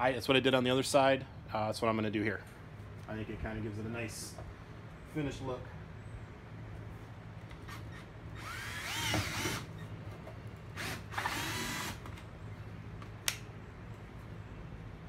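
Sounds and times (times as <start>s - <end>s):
cordless drill motor spinning: 7.7s - 9.8s, 10.7s - 12.1s
sharp click: 13.2s - 13.5s.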